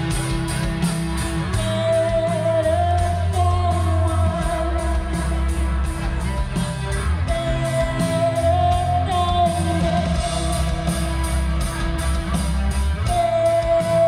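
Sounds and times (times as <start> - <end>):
live rock band playing: 0.0 - 14.0
person singing: 1.5 - 6.4, 7.0 - 11.5, 13.0 - 14.0.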